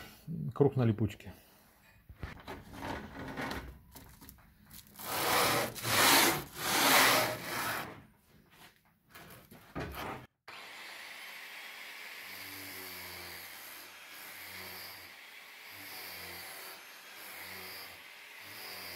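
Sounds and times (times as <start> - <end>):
angle grinder sanding wood: 5.0 - 7.9, 10.5 - 18.9.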